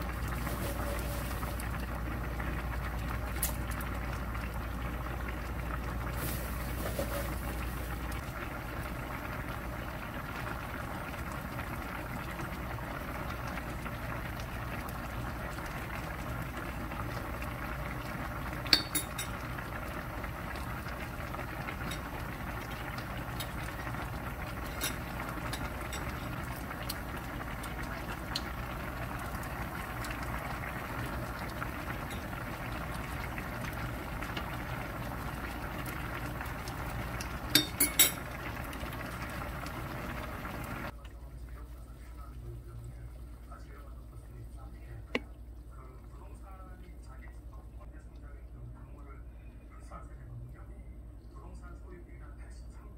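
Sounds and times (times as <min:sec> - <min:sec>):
stew bubbling in a pan: 0:00.0 - 0:49.7
metal utensils clinking on plate: 0:37.6 - 0:38.2.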